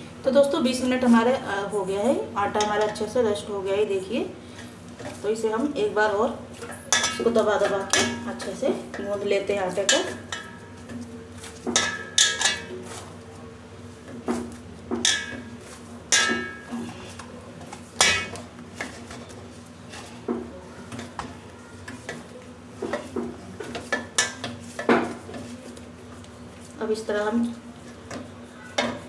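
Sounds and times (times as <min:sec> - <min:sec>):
knocks and clinks of metal plate: 0:15.0 - 0:15.5, 0:16.1 - 0:16.9, 0:18.0 - 0:18.4.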